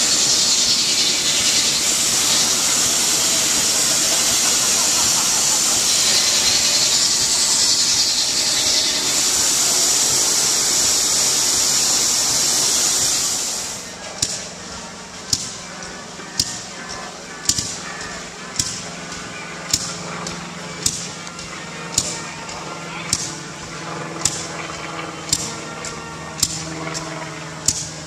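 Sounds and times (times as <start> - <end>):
loud steady hiss: 0.0 - 22.1.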